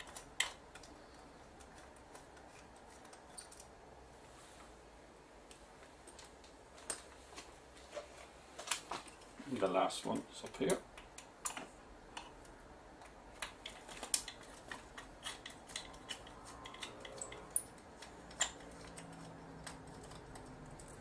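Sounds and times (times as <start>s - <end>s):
screwdriver and parts clicking: 0.0s - 3.8s, 10.1s - 21.0s.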